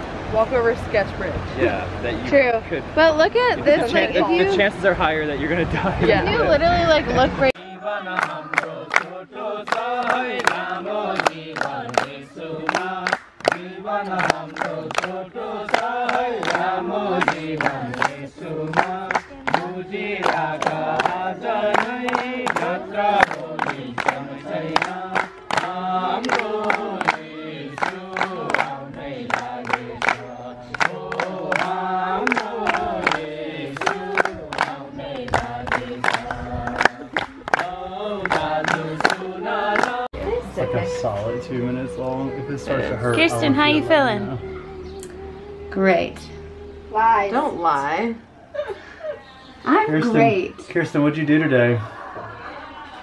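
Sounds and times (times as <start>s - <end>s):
group singing: 6.3s - 47.4s
hands clapping: 8.1s - 39.2s, 39.8s - 40.0s.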